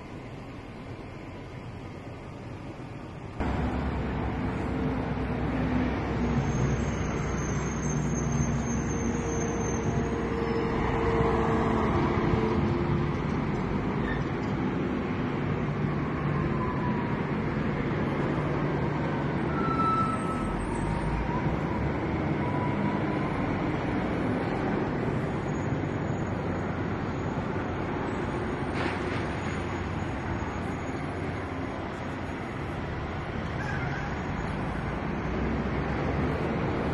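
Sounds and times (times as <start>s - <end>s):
traffic noise: 0.0s - 36.9s
diesel trucks idling: 0.1s - 7.5s.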